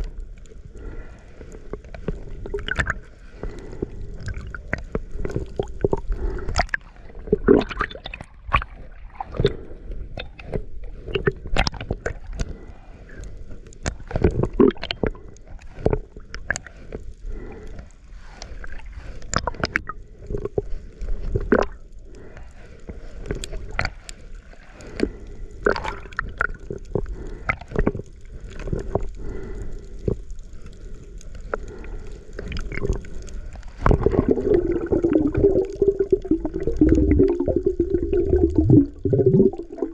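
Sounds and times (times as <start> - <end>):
muffled underwater gurgling: 0.0 - 13.1, 31.6 - 39.9.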